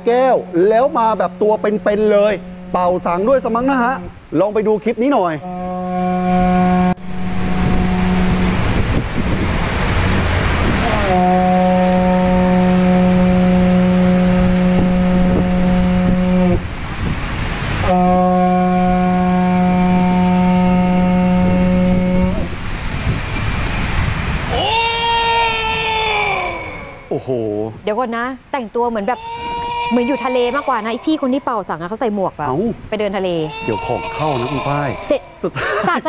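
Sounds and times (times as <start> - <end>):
conch shell trumpet blasts: 0.2 - 4.1, 5.1 - 9.6, 10.7 - 16.7, 17.8 - 22.6.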